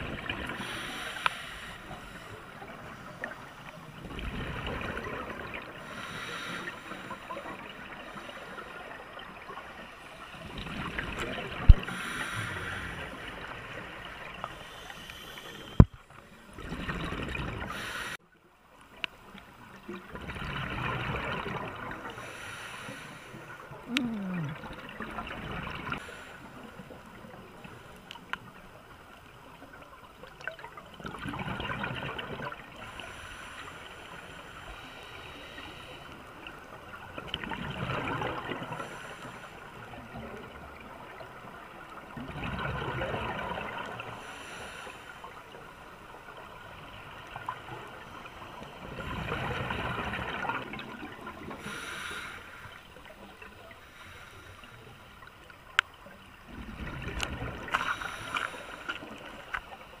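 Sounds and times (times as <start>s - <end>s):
regulator hiss on inhale: 0.6s - 2.5s, 5.8s - 7.3s, 11.8s - 13.3s, 14.5s - 15.9s, 17.7s - 18.2s, 22.1s - 23.6s, 32.8s - 36.3s, 38.7s - 39.8s, 44.2s - 45.4s, 51.6s - 52.9s, 53.8s - 55.2s, 57.7s - 59.6s
exhaled bubbles gurgling: 2.0s - 15.1s, 15.7s - 17.8s, 19.9s - 22.3s, 23.5s - 27.8s, 30.4s - 33.2s, 36.3s - 39.0s, 39.6s - 44.3s, 45.2s - 52.0s, 56.3s - 59.5s.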